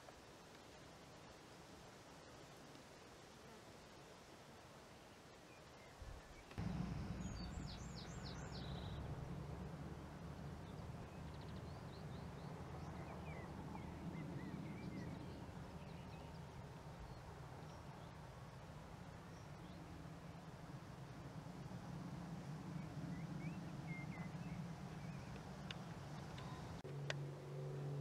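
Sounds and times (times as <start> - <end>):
small birds chirping: 5.6 - 9.3, 10.3 - 18.3, 22.7 - 26.8
steady low rumble: 6.6 - 17.2.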